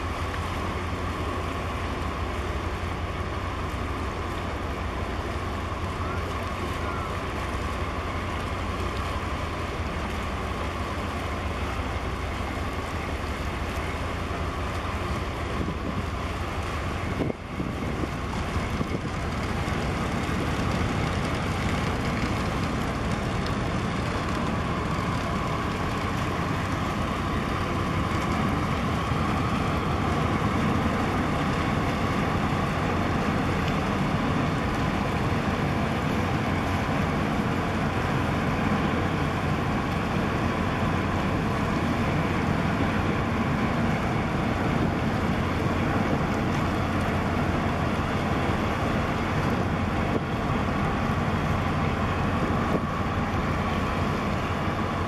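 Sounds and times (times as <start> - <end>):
ship engines rumbling: 0.0 - 55.0
wind on microphone: 16.8 - 24.2.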